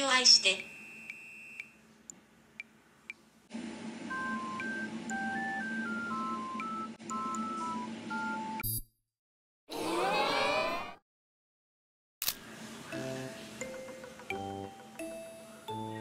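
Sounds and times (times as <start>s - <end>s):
electronic beeping melody: 4.1s - 8.8s.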